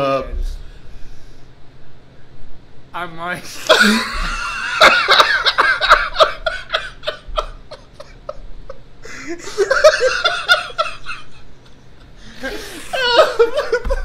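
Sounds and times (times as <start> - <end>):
men laughing hard: 3.6 - 14.0.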